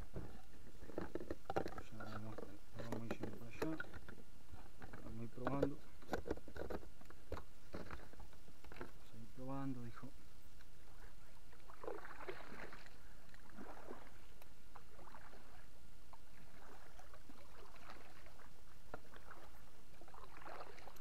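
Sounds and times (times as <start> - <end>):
paddle splashing in water: 11.6 - 15.7, 16.3 - 21.0.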